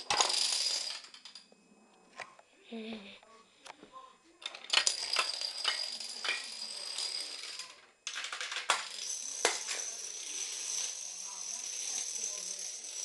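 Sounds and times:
dominoes toppling and clattering: 0:04.4 - 0:13.0.

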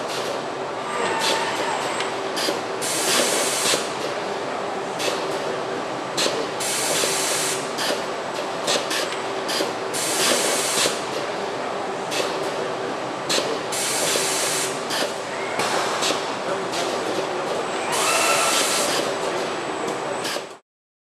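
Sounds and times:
sharp air blasts: 0:02.4 - 0:03.9, 0:06.2 - 0:08.1, 0:08.7 - 0:11.0, 0:13.3 - 0:16.4, 0:17.9 - 0:19.1.

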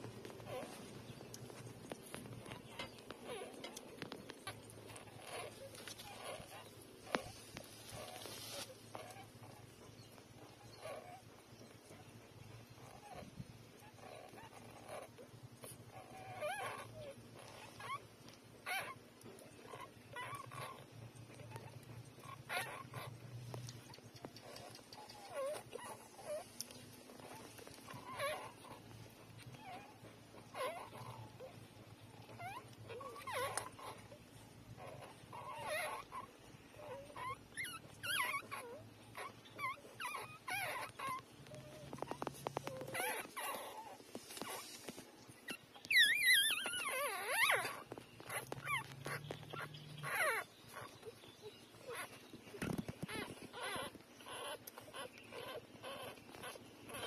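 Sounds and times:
puppies squeaking: 0:00.0 - 0:57.0.

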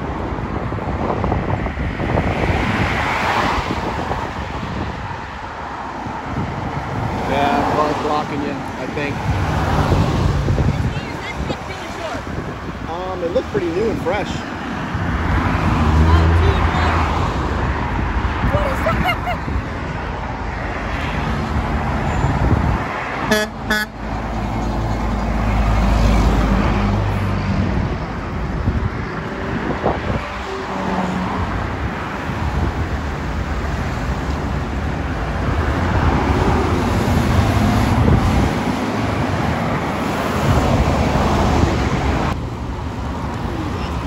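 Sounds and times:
traffic passing on busy road: 0:00.0 - 0:44.0
vehicle horn toots: 0:23.3 - 0:24.0.

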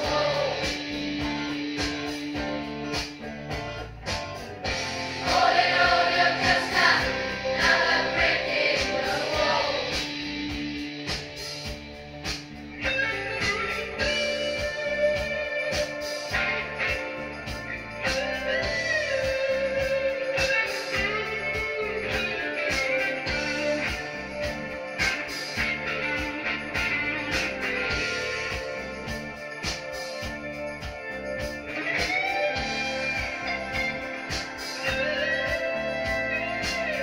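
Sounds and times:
person singing: 0:00.0 - 0:01.4
guitar: 0:00.0 - 0:37.0.

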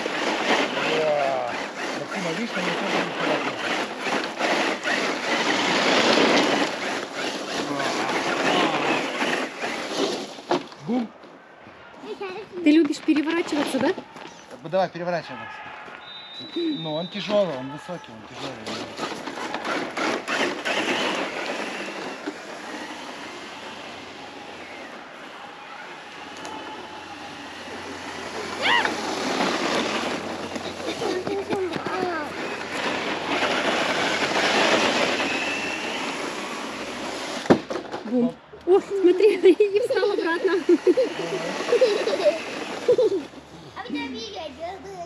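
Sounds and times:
radio-controlled truck driving fast: 0:00.0 - 0:10.7, 0:18.3 - 0:43.4
tyres rushing over rough ground: 0:00.0 - 0:10.9, 0:16.0 - 0:43.5.

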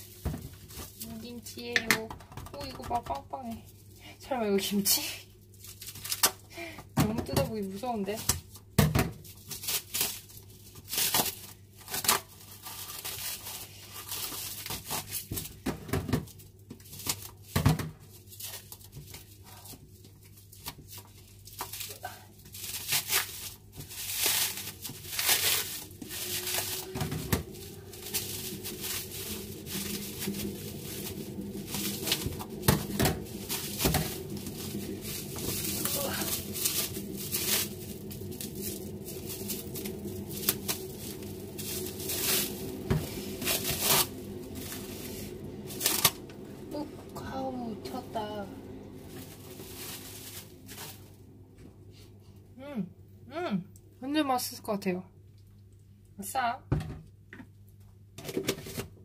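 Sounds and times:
plastic wrapping crinkling: 0:00.0 - 0:01.8, 0:02.5 - 0:15.6, 0:16.2 - 0:51.2.

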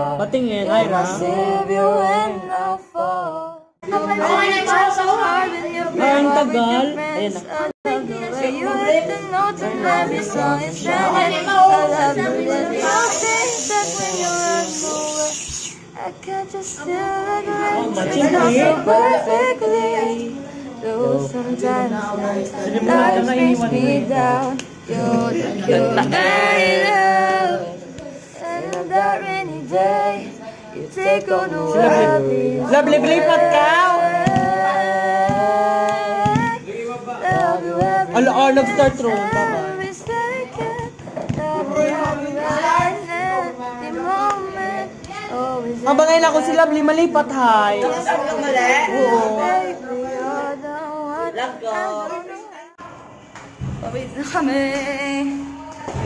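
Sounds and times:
unaccompanied singing voices: 0:00.0 - 0:56.0
steady hiss: 0:12.6 - 0:16.7.

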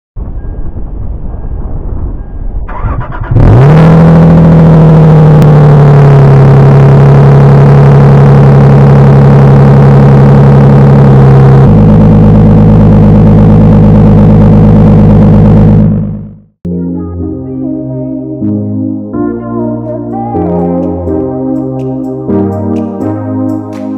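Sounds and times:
engine rev flare: 0:00.2 - 0:16.6
car engine cold start: 0:00.4 - 0:16.4
car engine idling: 0:02.7 - 0:16.5.

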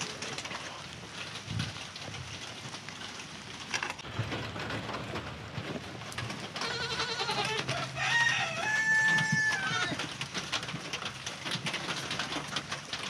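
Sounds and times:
goats bleating: 0:06.6 - 0:10.0.

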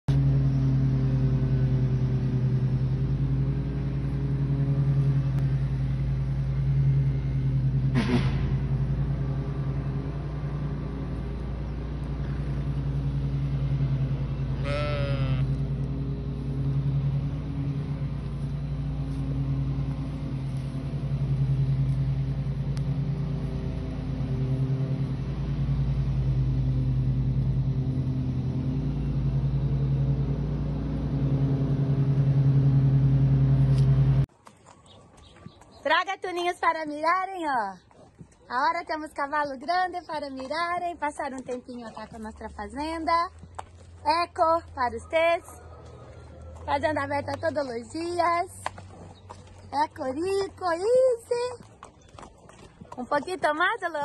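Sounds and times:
low motor drone: 0:00.1 - 0:34.3
sheep bleating: 0:14.6 - 0:15.6.

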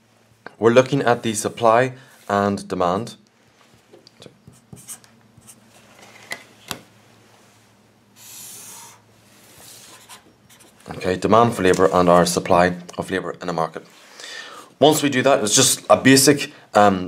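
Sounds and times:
marker pen drawing on paper: 0:04.4 - 0:05.6, 0:08.2 - 0:10.9.

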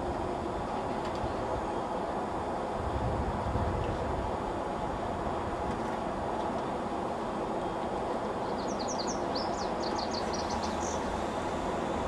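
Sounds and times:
steady background noise: 0:00.0 - 0:12.0
small bird chirping: 0:08.5 - 0:11.0.

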